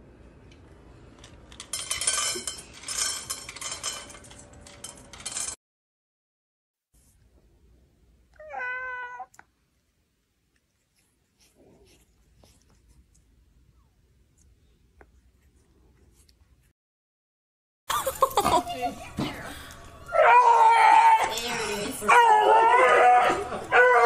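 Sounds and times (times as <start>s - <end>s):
cat warning meow: 8.4s - 9.4s.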